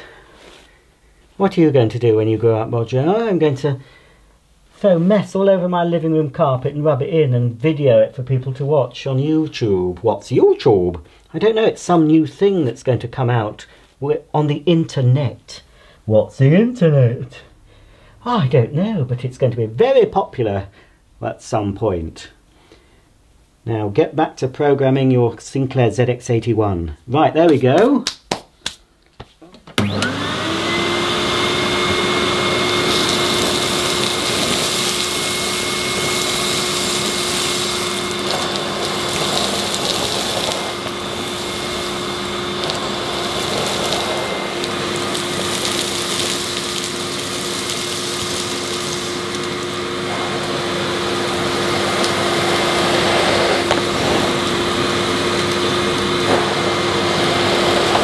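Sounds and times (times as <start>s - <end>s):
vacuum head on carpet: 29.4s - 58.0s
vacuum cleaner motor whining: 29.8s - 58.0s.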